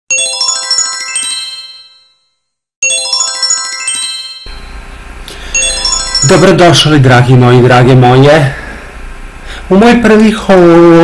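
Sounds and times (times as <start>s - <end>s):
sparkling chime: 0.1s - 4.5s, 5.6s - 6.7s
low steady hum: 4.5s - 10.8s.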